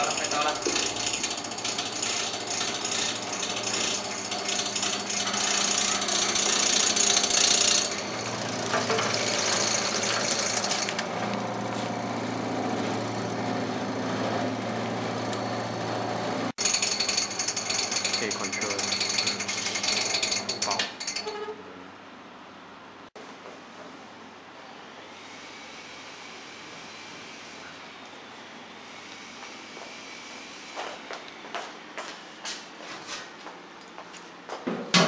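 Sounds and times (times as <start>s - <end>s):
vegetable cutting machine clattering: 0.0s - 11.6s, 12.2s - 21.2s.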